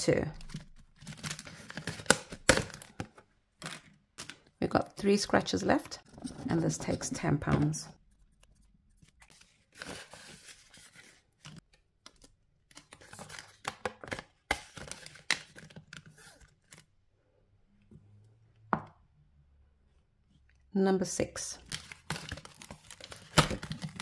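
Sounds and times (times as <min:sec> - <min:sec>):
paper rustling: 0:06.0 - 0:16.8.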